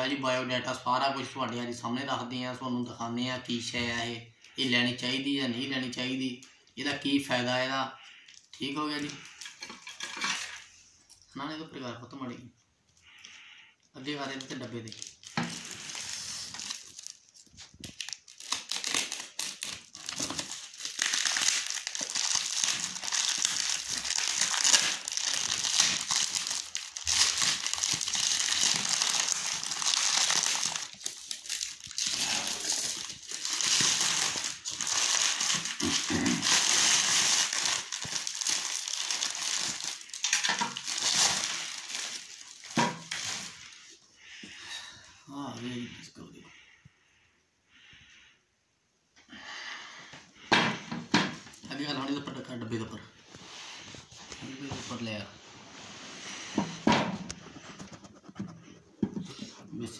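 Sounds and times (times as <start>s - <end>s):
plastic wrapping crinkling: 14.1s - 43.9s.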